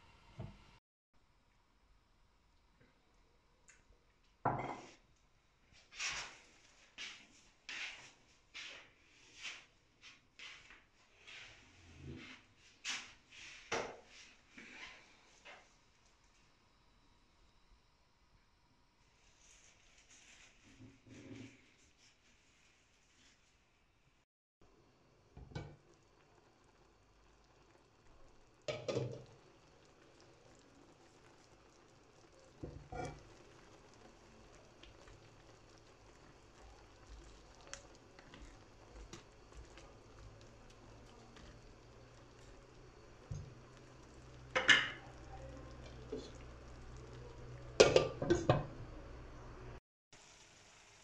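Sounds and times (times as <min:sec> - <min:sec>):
meat simmering in a pan: 0:02.4 - 0:23.6, 0:24.7 - 0:51.0
cookware clatter: 0:28.7 - 0:29.3, 0:44.5 - 0:45.2, 0:47.8 - 0:48.8
glass lid clinking on pot: 0:44.6 - 0:45.0
cookware knock: 0:47.8 - 0:48.7.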